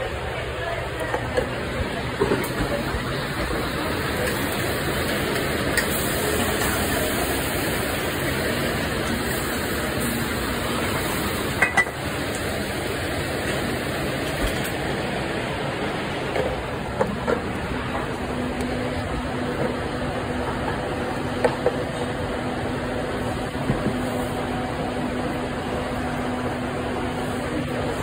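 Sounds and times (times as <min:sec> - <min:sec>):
restaurant kitchen background noise: 0:00.0 - 0:28.0
metal pans and dishes clinking: 0:11.6 - 0:12.0.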